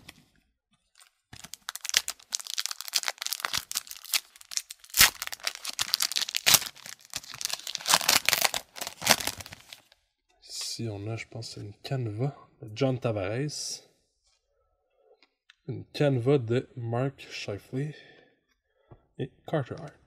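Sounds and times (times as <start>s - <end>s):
foil wrapper tearing and crumpling: 1.0s - 10.0s.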